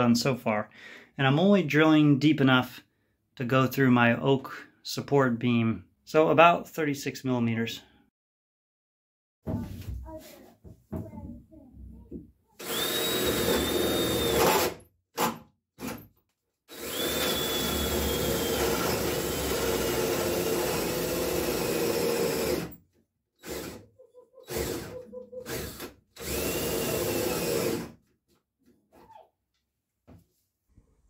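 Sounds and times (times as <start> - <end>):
cordless drill boring into wood: 12.6 - 16.0, 16.7 - 22.8, 23.4 - 23.8, 24.4 - 27.9.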